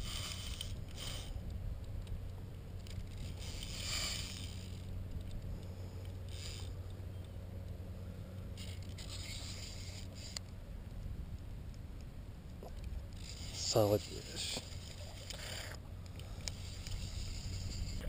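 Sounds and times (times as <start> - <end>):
fishing reel cranking: 0.0 - 1.3, 2.8 - 5.0, 6.3 - 6.7, 8.6 - 10.4, 13.1 - 18.0
low rumble: 0.0 - 13.6.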